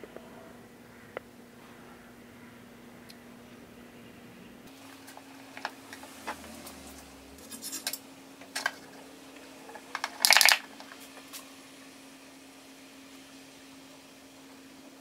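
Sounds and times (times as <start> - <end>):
can crackling when handled: 9.7 - 11.5.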